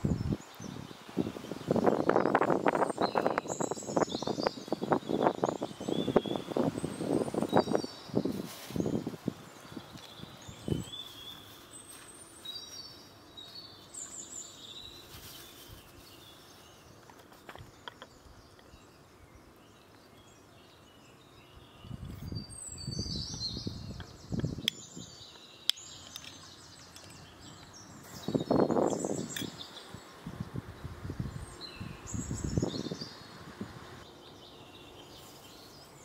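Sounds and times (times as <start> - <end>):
small birds chirping and singing: 0.0 - 36.0
soft rustling: 8.3 - 14.3, 14.9 - 17.8.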